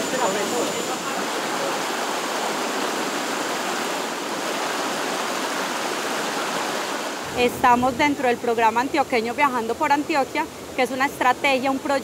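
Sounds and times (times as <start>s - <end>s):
water rushing over rocks: 0.0s - 9.0s.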